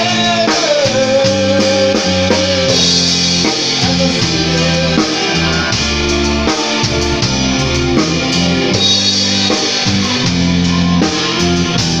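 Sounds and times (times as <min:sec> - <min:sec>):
drum kit: 0:00.0 - 0:12.0
electric guitars: 0:00.0 - 0:12.0.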